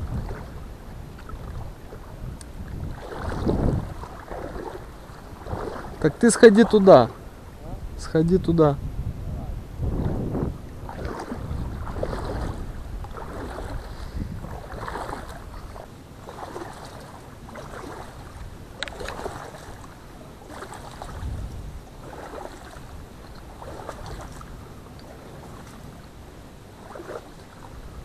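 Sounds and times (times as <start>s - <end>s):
water sloshing: 0.0s - 7.6s, 9.8s - 28.0s
reed stems swishing: 2.8s - 7.2s, 9.9s - 21.4s, 22.0s - 26.0s.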